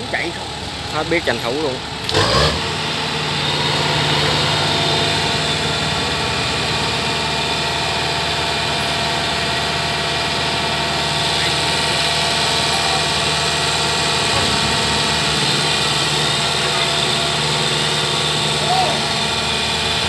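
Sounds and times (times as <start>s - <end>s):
diesel engine running: 0.0s - 20.0s.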